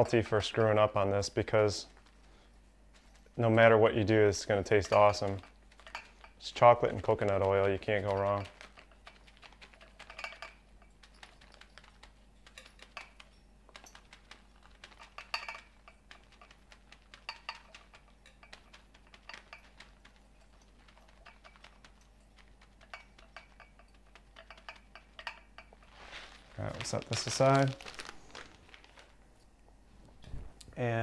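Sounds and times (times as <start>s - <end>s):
shavings ticking into metal tin: 3.3s - 25.4s
plastic bag rustling: 25.7s - 30.6s.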